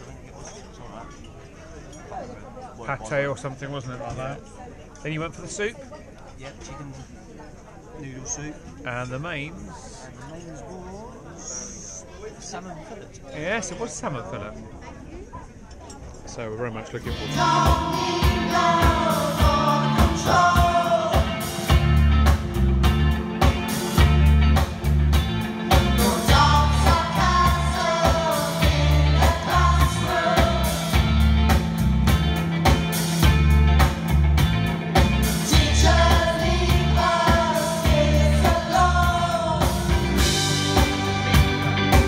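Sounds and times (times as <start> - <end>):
singers: 17.0 - 22.4, 25.6 - 31.8, 35.2 - 42.0
live pop-rock band: 17.0 - 42.0.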